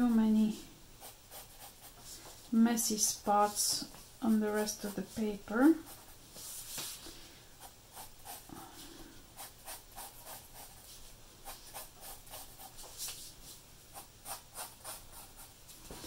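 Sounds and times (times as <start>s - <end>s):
pencil scratching on paper: 1.0s - 2.3s, 4.3s - 6.7s, 7.6s - 8.5s, 9.4s - 13.2s, 13.9s - 15.5s.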